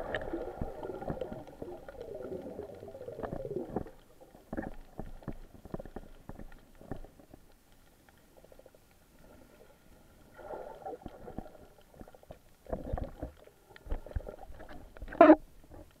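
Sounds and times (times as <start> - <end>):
muffled underwater water movement: 0.0 - 16.0.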